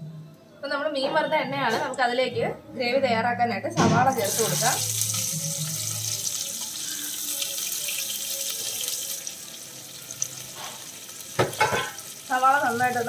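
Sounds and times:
onions sizzling in hot oil: 4.1 - 13.0.

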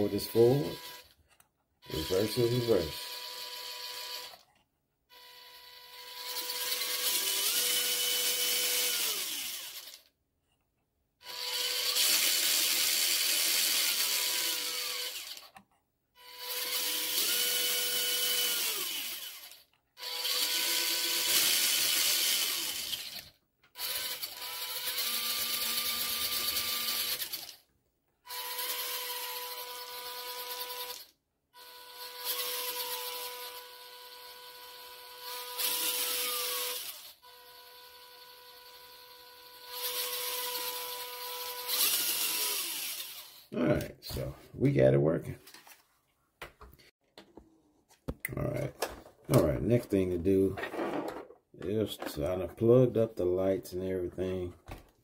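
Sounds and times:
electric motor and gears whirring: 0.0 - 10.1, 11.2 - 44.3.

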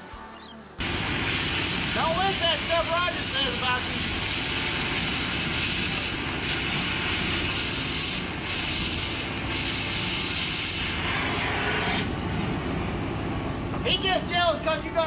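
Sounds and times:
cutting torch hissing: 0.0 - 13.2.

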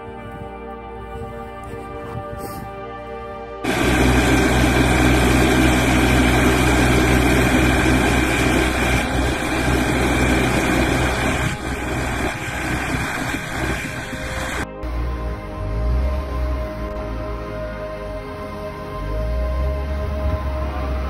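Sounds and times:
snowblower engine running: 3.6 - 17.5.

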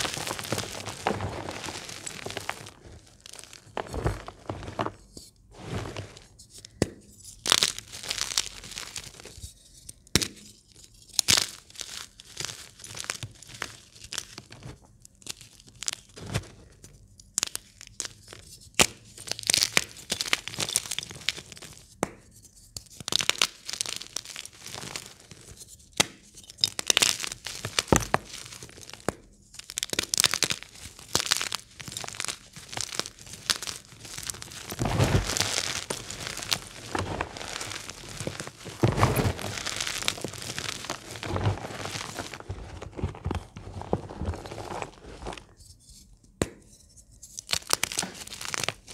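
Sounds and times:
chalk crunching by hand: 0.0 - 6.5, 22.4 - 45.7, 47.2 - 48.9
chalk pieces snapping: 17.4 - 25.1, 26.0 - 41.3, 47.2 - 48.9.

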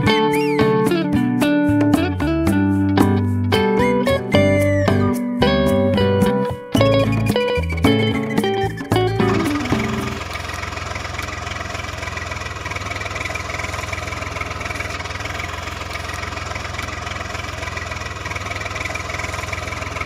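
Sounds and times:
engine idling: 6.8 - 20.0.

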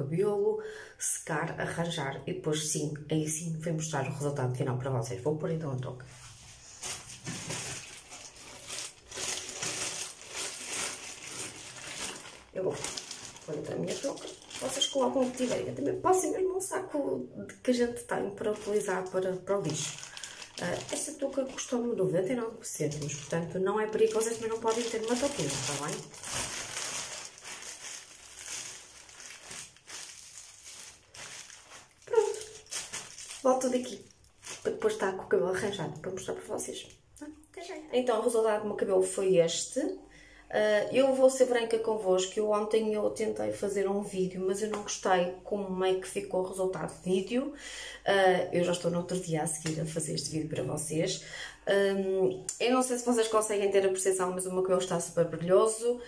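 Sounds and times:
plastic cap crinkling and rustling: 6.8 - 15.9, 22.8 - 34.8.

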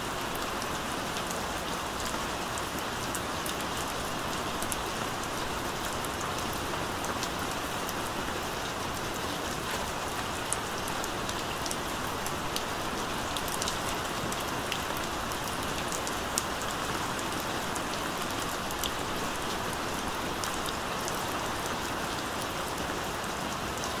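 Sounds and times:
steady rain hiss: 0.0 - 24.0.

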